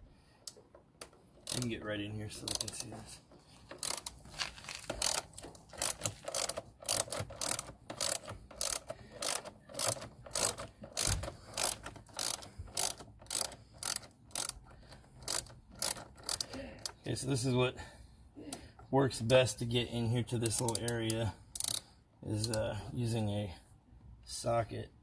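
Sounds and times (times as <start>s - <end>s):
hand ratchet clicking: 0.4s - 1.8s, 2.4s - 3.0s, 3.7s - 17.1s, 20.4s - 22.7s.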